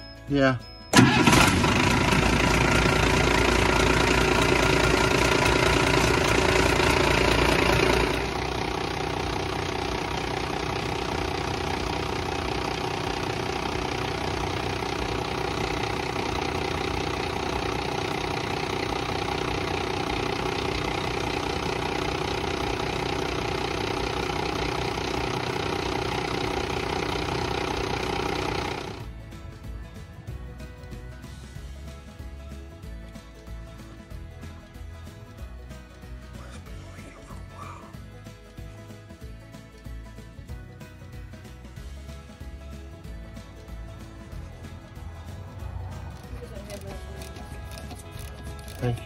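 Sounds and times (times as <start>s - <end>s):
diesel engine idling: 0.0s - 49.0s.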